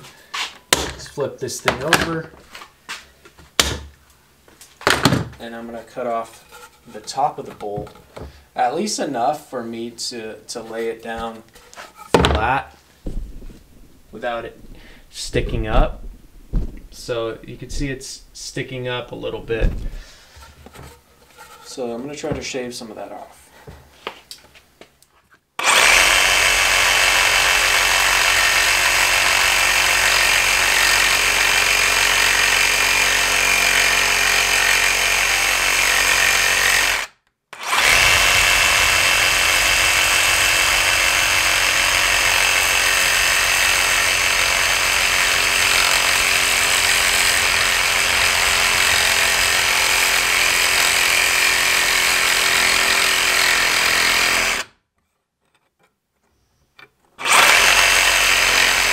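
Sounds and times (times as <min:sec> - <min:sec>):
reciprocating saw cutting metal: 0:25.6 - 0:54.7, 0:57.2 - 0:58.9.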